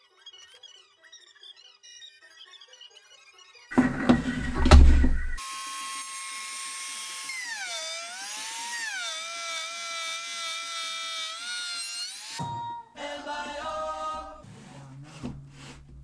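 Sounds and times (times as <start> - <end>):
router whining cutting wood: 5.2 - 12.4.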